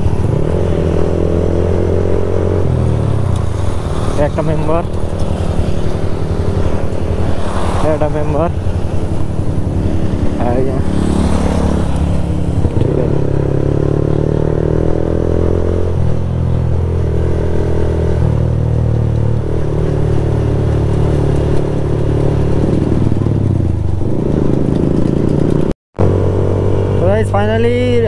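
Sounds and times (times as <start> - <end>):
motorcycle engine running: 0.0 - 28.0.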